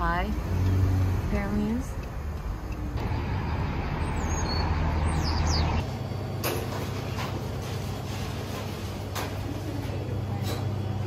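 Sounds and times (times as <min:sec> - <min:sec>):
road and engine noise in van: 0:00.0 - 0:11.0
high bird chirps: 0:04.0 - 0:05.8.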